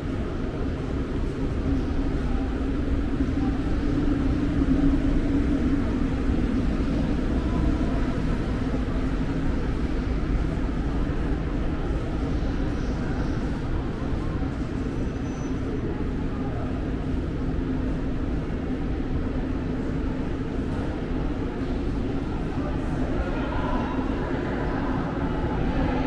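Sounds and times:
steady low rumble: 0.0 - 14.9.

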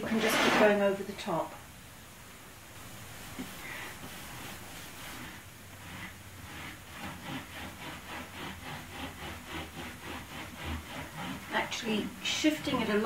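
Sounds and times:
cloth rubbing briskly on wood: 3.4 - 13.0
paintbrush strokes on wood: 3.4 - 13.0.

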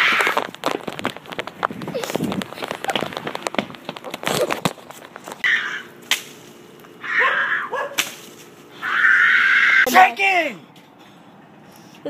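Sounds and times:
sharp crack: 0.0 - 7.0, 7.9 - 8.5.

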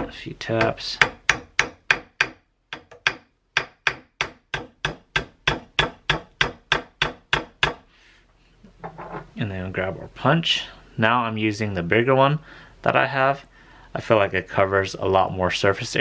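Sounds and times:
small hammer tapping pins: 0.6 - 7.8.

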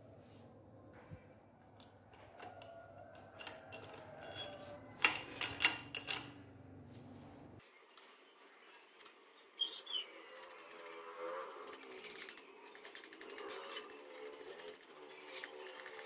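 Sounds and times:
steel bolt scraping on metal: 2.1 - 6.4.

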